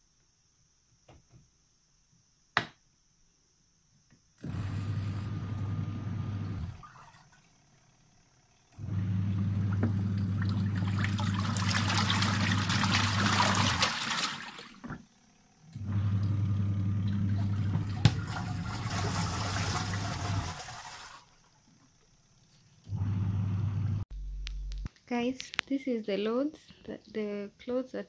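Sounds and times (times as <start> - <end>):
washing machine motor humming: 4.4 - 24.0
water sloshing in tub: 6.7 - 7.6, 9.3 - 15.1, 16.9 - 22.8.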